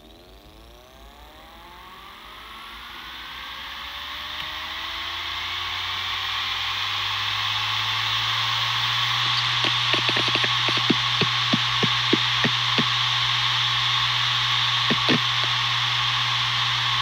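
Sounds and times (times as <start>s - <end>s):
hard drive spinning up: 0.0s - 17.0s
low hum: 8.9s - 17.0s.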